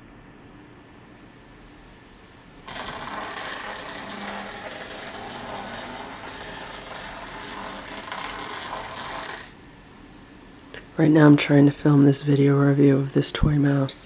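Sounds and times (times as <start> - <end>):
toy motor whirring: 2.7 - 9.6.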